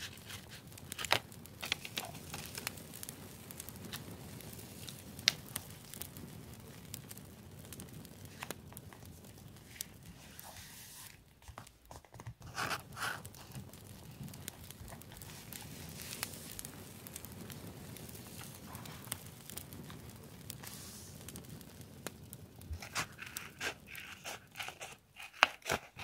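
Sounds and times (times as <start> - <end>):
paper rustling and rubbing: 0.0 - 2.6, 9.6 - 13.6, 20.6 - 21.2, 22.7 - 26.0.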